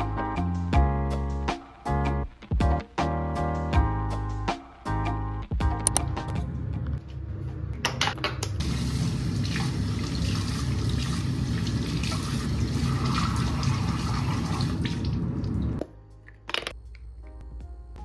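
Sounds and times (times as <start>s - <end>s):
tap water running into sink: 8.6s - 15.8s.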